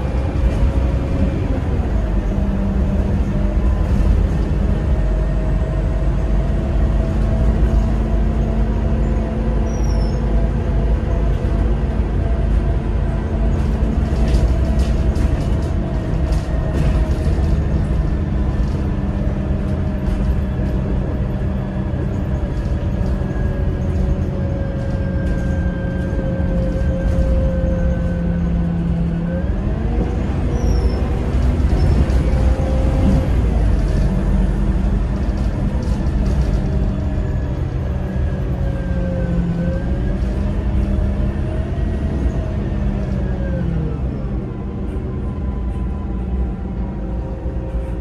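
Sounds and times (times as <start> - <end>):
bus engine and road rumble: 0.0 - 48.0
rattles and clicks: 13.5 - 27.8, 31.2 - 38.4.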